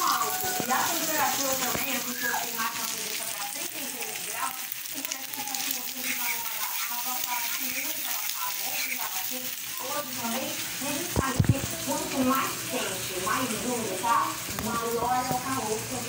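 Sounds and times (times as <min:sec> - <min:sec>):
eggs and meat sizzling in oil: 0:00.0 - 0:16.0
fork scraping a frying pan: 0:05.5 - 0:09.1.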